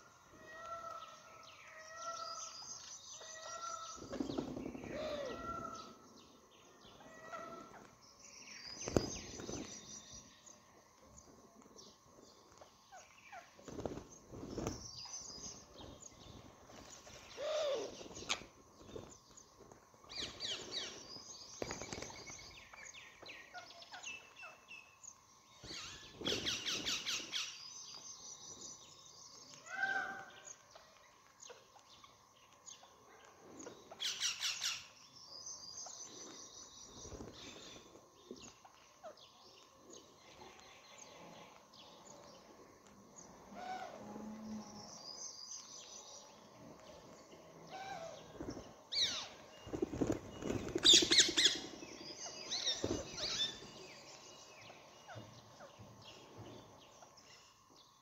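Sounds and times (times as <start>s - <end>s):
parakeets chirping: 50.8s - 53.6s.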